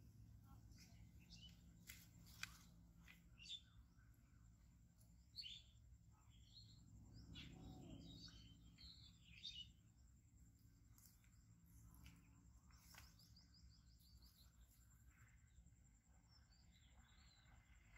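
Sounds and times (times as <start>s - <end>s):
low background hum: 0.0s - 17.9s
faint bird chirps: 0.3s - 17.9s.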